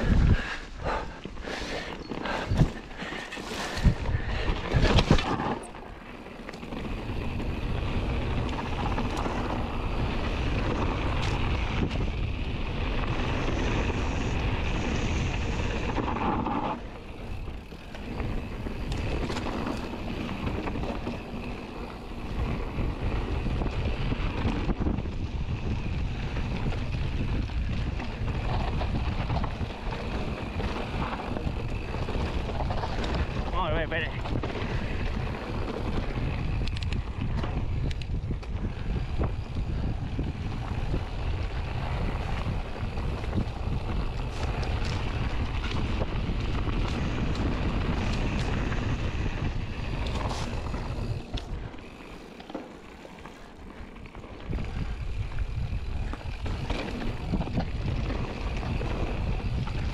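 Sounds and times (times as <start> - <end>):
wind rushing over microphone: 0.0 - 52.3, 53.0 - 59.9
bike tyres rolling over dirt: 0.0 - 59.9
bike knocking over rough ground: 4.6 - 6.0.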